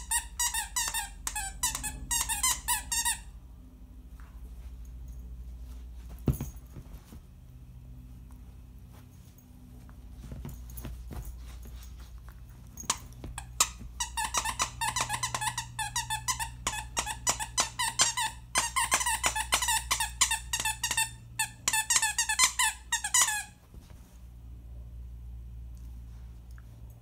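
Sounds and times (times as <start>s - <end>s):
dog toy squeaking: 0.0s - 3.4s, 12.8s - 23.6s.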